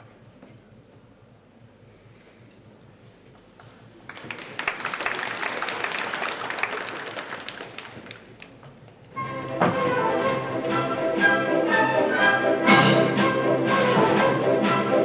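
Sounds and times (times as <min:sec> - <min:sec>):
audience applauding: 0:04.0 - 0:08.8
orchestra playing: 0:09.2 - 0:15.0.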